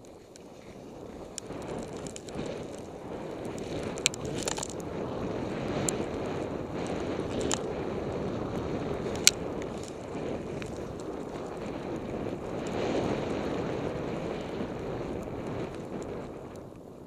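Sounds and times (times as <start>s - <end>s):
skis gliding through powder snow: 0.0s - 17.0s
wind on microphone: 0.0s - 17.0s.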